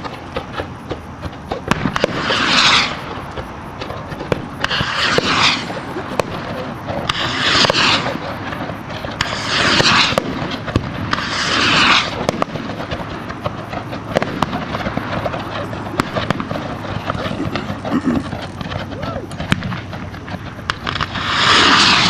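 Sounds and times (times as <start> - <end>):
rockets bursting with cracks: 0.0 - 22.0
rocket launching whoosh: 1.7 - 3.2, 4.3 - 13.4, 18.6 - 22.0.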